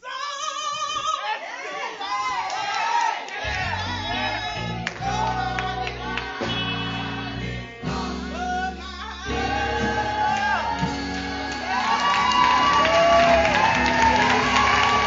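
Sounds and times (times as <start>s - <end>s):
person singing: 3.4s - 15.0s
church band playing: 3.5s - 15.0s
sustained bass notes: 3.5s - 15.0s.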